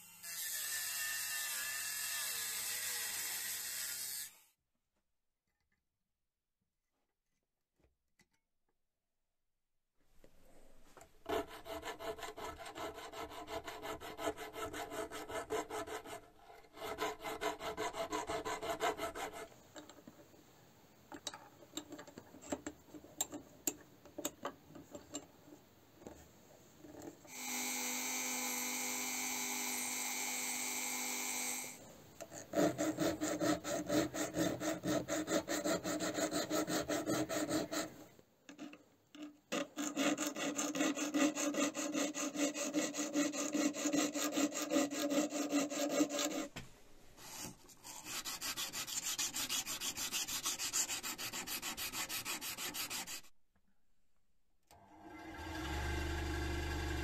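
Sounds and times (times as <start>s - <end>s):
file rasping on knife blade: 11.3s - 19.5s, 32.3s - 38.8s, 39.5s - 46.5s, 47.4s - 53.3s
sanding stick rubbing blade: 11.3s - 19.5s, 32.6s - 38.0s, 39.6s - 46.5s, 47.2s - 53.3s.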